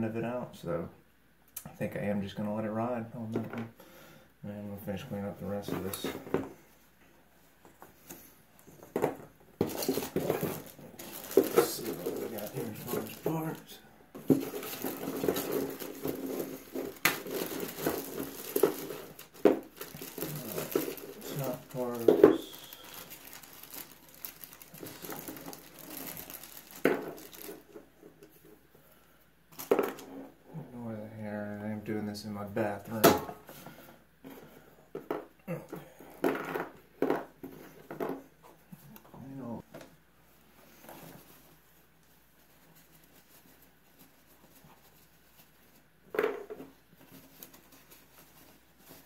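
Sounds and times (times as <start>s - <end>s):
hands rummaging through parts: 7.6s - 28.0s
plastic bag crinkling: 9.6s - 27.9s.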